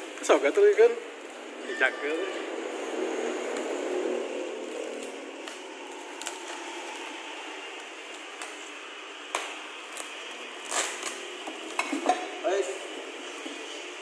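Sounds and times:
bubble wrap crackling: 0:02.7 - 0:11.8.

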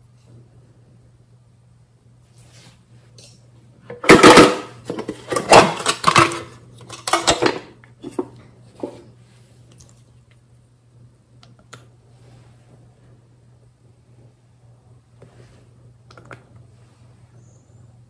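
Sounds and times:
metal tin lid rattling: 0:03.9 - 0:08.2.

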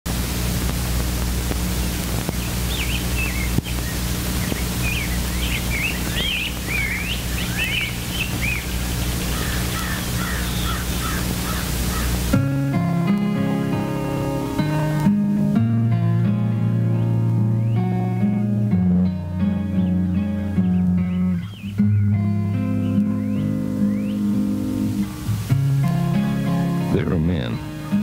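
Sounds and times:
acoustic guitar music: 0:00.1 - 0:28.0
film soundtrack hiss and hum: 0:00.1 - 0:28.0
birds chirping: 0:01.4 - 0:14.6, 0:17.3 - 0:18.4, 0:19.3 - 0:28.0.

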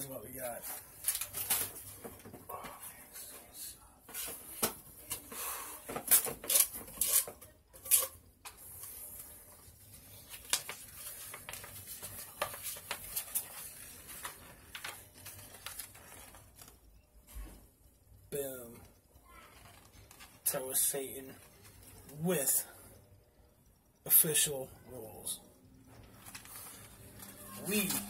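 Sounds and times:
paper rustling and crinkling: 0:00.4 - 0:02.3, 0:06.1 - 0:16.8, 0:26.0 - 0:28.0.

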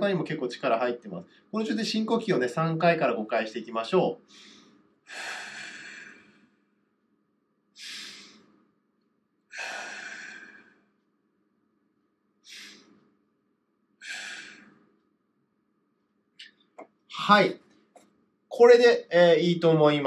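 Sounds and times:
man breathing deeply: 0:04.3 - 0:06.8, 0:07.8 - 0:08.7, 0:09.5 - 0:11.0, 0:12.4 - 0:13.2, 0:14.0 - 0:15.0.

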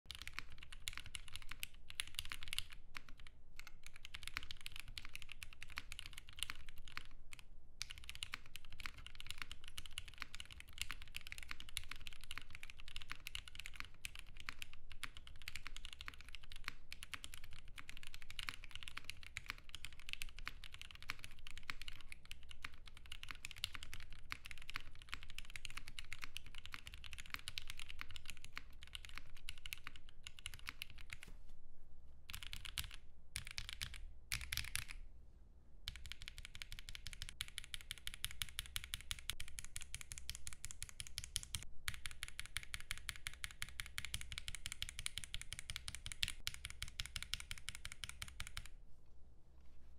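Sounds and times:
fast mechanical keyboard typing: 0:00.1 - 0:07.2, 0:07.8 - 0:31.2, 0:32.3 - 0:35.0, 0:35.9 - 0:48.7.

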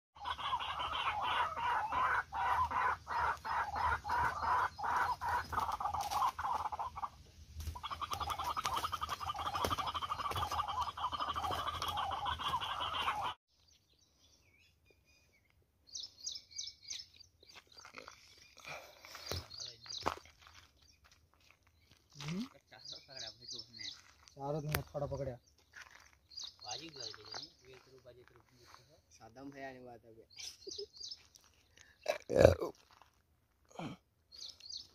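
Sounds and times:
hen clucking and cackling: 0:00.2 - 0:13.4.

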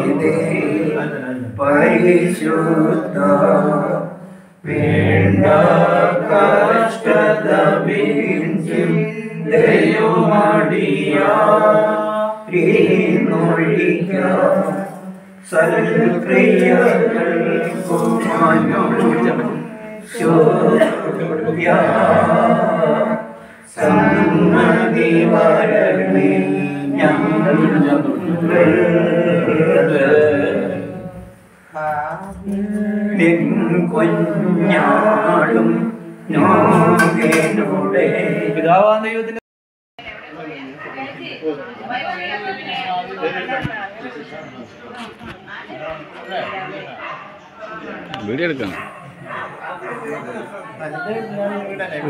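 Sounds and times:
voices chanting a sung prayer: 0:00.0 - 0:39.4, 0:41.0 - 0:52.0
man chanting mantras: 0:31.7 - 0:32.6.

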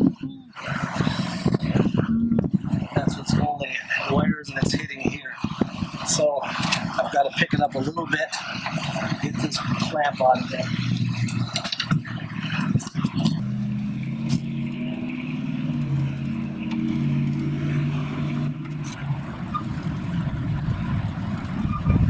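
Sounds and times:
engine humming: 0:00.0 - 0:22.0
sharp clicks and knocks: 0:08.6 - 0:20.1.

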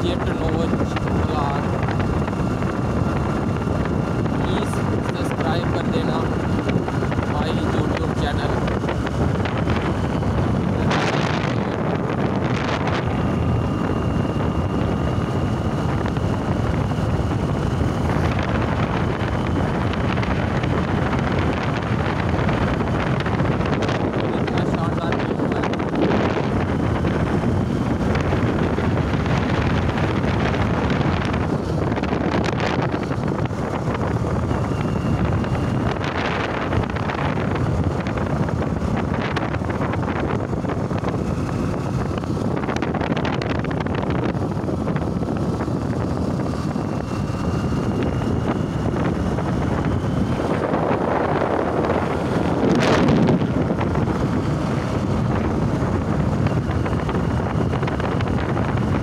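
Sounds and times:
vehicle road and engine noise: 0:00.0 - 0:59.0
wind buffeting microphone: 0:00.0 - 0:59.0.

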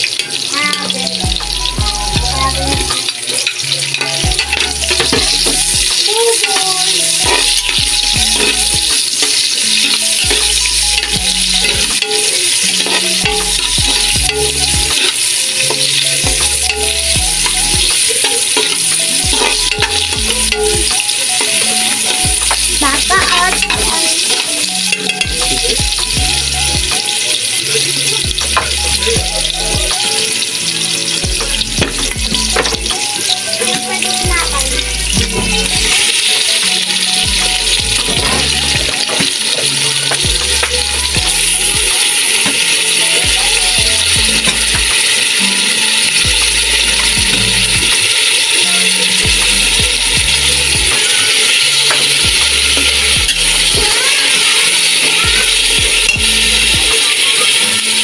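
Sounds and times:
onions sizzling in hot oil: 0:00.0 - 0:58.0
utensil scraping a metal pot: 0:03.4 - 0:25.2.

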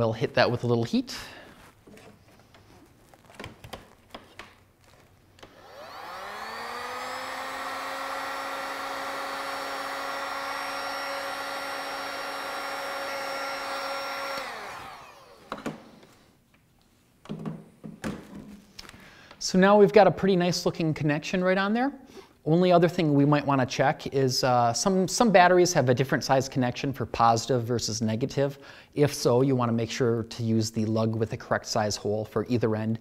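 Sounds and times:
heat gun fan blowing: 0:05.3 - 0:16.2.

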